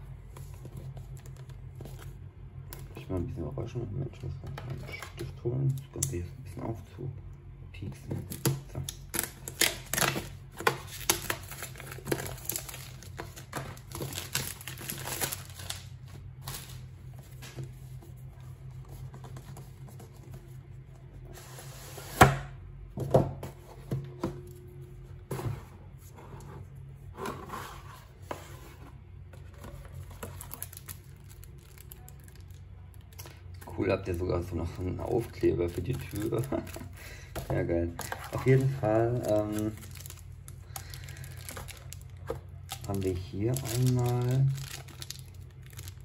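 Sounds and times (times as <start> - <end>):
cardboard and plastic rustling: 0.2 - 3.1, 8.0 - 22.0, 22.9 - 46.0.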